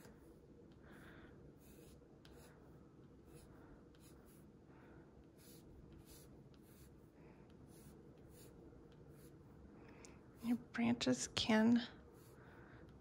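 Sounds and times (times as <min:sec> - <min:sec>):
pencil scratching on paper: 0:00.0 - 0:00.4, 0:01.6 - 0:04.6, 0:05.2 - 0:09.6, 0:10.3 - 0:10.7, 0:12.0 - 0:13.0.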